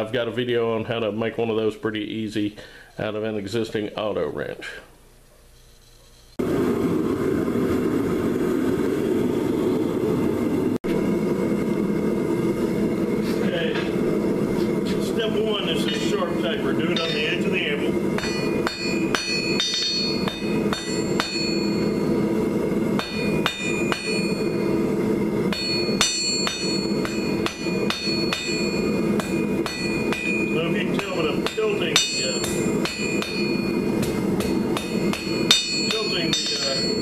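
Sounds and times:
anvil ringing: 15.9s - 22.2s, 23.0s - 24.8s, 25.5s - 37.0s
hammer striking steel on anvil: 15.9s - 22.2s, 22.9s - 24.7s, 25.5s - 37.0s.

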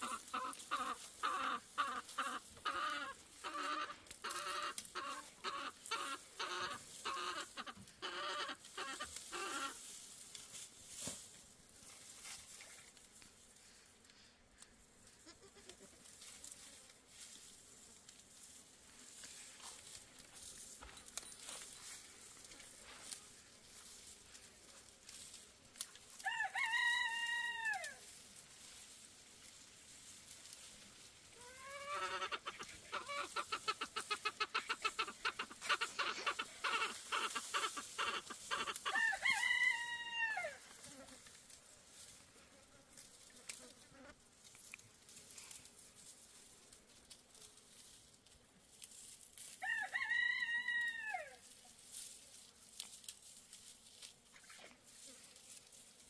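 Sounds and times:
rooster crowing: 26.2s - 28.0s, 38.0s - 40.6s, 49.6s - 51.4s
rapid pulsing calls: 31.6s - 39.0s.

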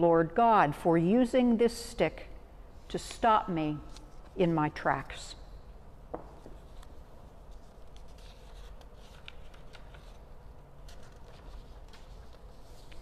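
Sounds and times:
paper rustling: 6.4s - 13.0s.

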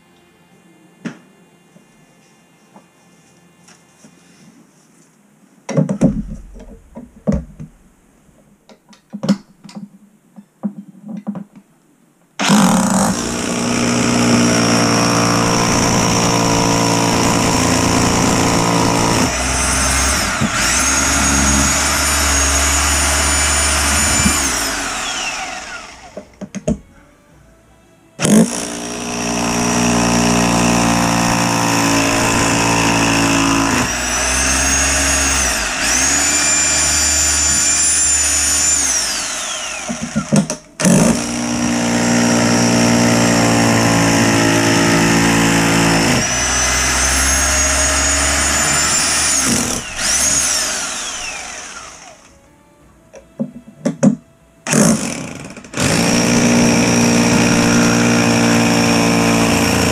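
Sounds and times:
power drill boring into concrete: 12.4s - 26.2s, 28.2s - 52.3s, 54.7s - 59.9s.

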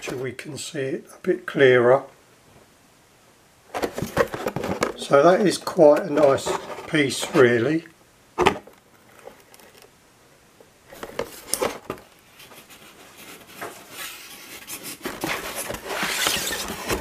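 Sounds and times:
plastic crinkling and rubbing: 3.7s - 7.7s, 8.6s - 9.9s, 10.9s - 17.0s.

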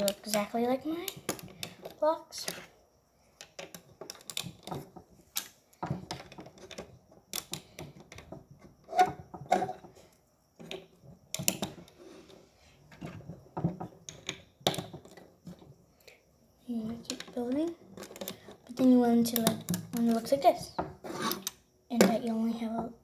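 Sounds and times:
plastic bricks clicking: 0.0s - 2.7s, 3.4s - 9.8s, 10.6s - 11.9s, 13.0s - 15.6s, 17.0s - 20.4s.

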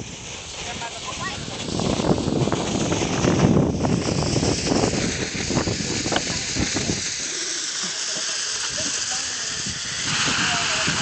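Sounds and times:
firework fountain hissing and crackling: 0.0s - 11.0s.

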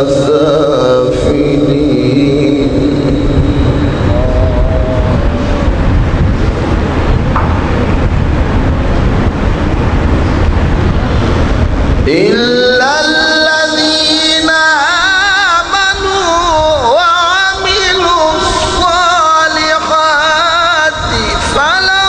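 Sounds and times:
man reciting melodically over microphone: 0.0s - 5.4s, 12.0s - 22.0s
loud rushing noise: 0.0s - 22.0s.

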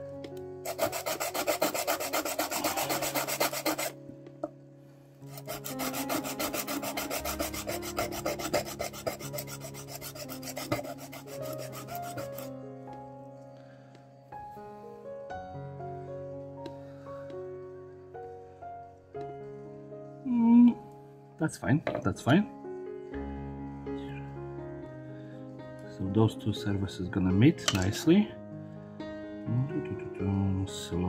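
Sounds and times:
background music: 0.0s - 31.0s
sandpaper rubbing on metal: 0.6s - 4.0s, 5.3s - 12.5s.

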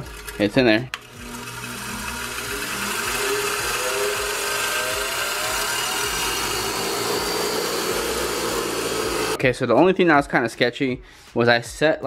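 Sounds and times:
bench grinder motor whine: 0.0s - 9.4s.

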